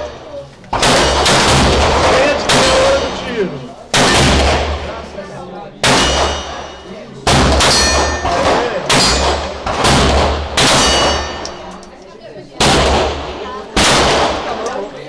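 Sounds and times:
bullets pinging steel targets: 0:00.7 - 0:04.4, 0:05.8 - 0:12.0
handgun shots: 0:03.9 - 0:04.7, 0:05.8 - 0:06.7, 0:07.3 - 0:11.7, 0:13.8 - 0:14.8.

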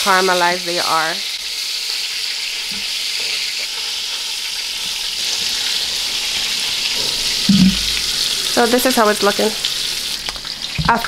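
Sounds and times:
meat sizzling in oil: 0:00.0 - 0:11.0.

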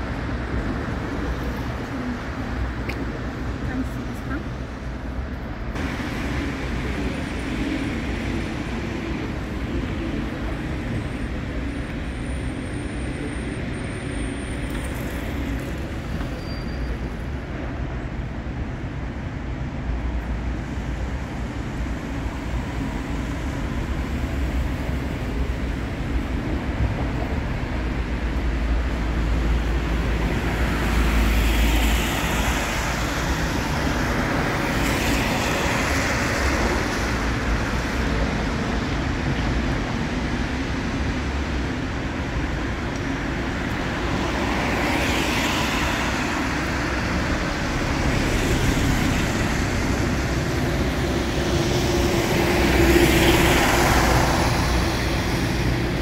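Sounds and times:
cars driving past: 0:26.6 - 0:56.0.

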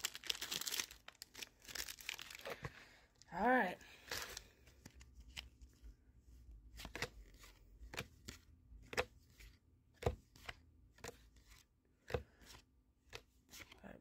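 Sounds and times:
trading cards flipped by hand: 0:04.1 - 0:05.7, 0:06.7 - 0:13.8.

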